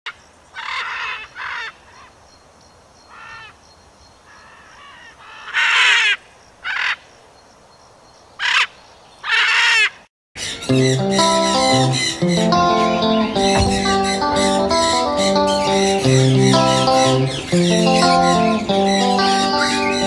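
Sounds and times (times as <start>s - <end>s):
parrot squawking: 8.4s - 20.0s.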